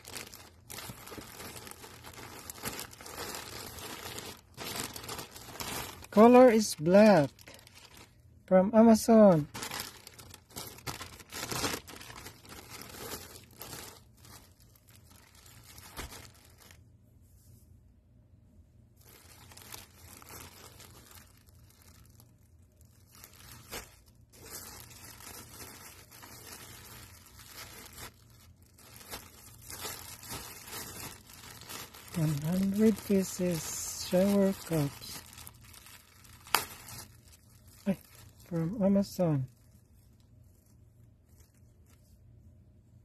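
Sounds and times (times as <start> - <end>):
plastic packaging crinkling and tearing: 0.0 - 16.8, 19.0 - 42.3.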